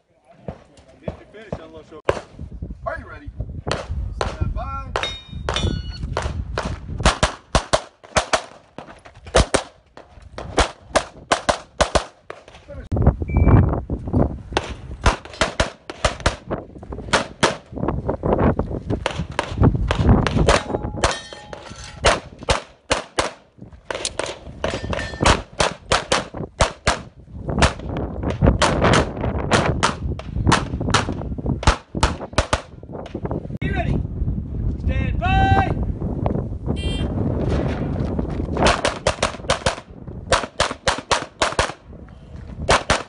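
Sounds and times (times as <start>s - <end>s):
rapid pistol fire: 6.2s - 8.6s, 10.6s - 12.2s, 14.6s - 16.4s, 38.6s - 41.8s, 42.7s - 43.0s
steel targets clanging: 20.5s - 22.1s, 24.7s - 25.3s.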